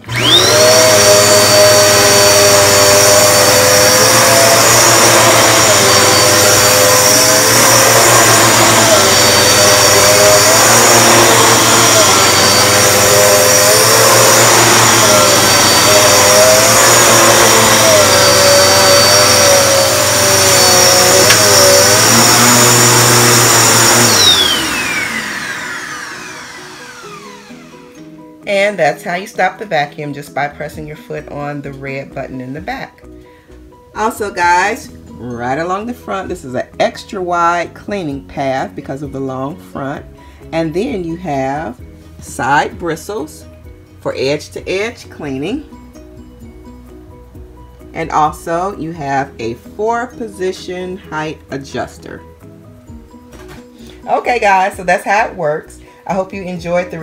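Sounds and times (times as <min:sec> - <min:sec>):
vacuum cleaner motor running: 0:00.0 - 0:28.6.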